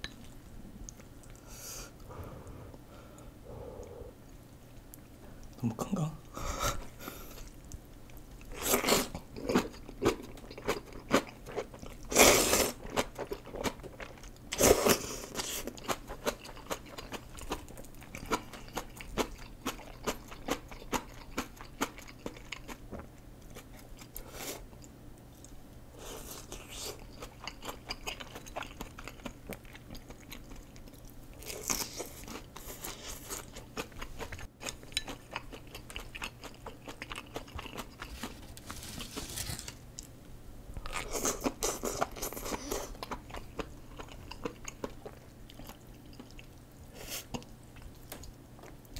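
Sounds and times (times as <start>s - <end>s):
wet chewing: 26.4s - 40.1s, 40.8s - 46.6s.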